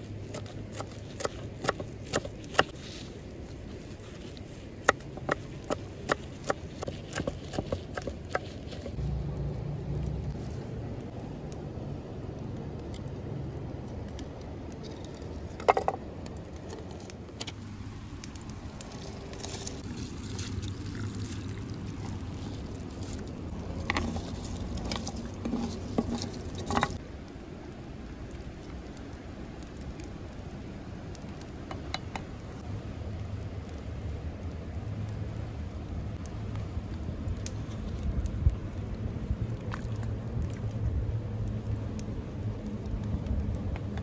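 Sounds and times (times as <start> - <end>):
steady low rumble: 7.3 - 28.2, 29.0 - 44.0
metal knocks and scrapes: 23.8 - 27.0.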